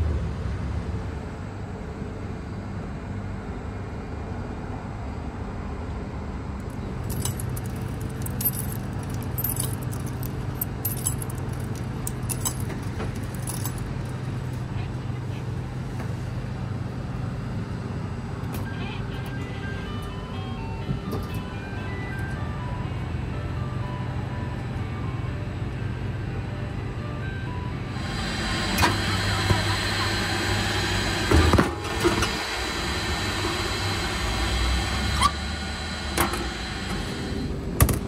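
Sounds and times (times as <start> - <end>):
steady low hum: 0.0 - 38.0
coins clinking into slot: 6.6 - 14.6.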